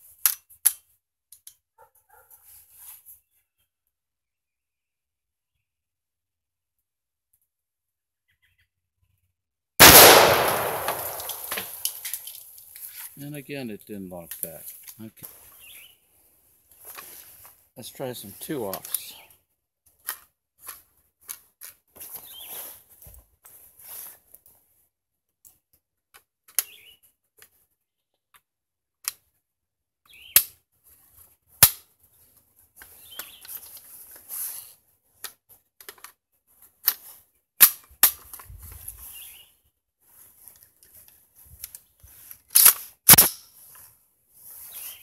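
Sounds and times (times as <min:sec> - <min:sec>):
cartridges pressed into rifle magazine: 0:09.8 - 0:12.4
sharp metallic snaps: 0:09.8 - 0:12.4, 0:42.6 - 0:43.4
magazine clacking into rifle: 0:09.8 - 0:13.1, 0:42.4 - 0:43.5.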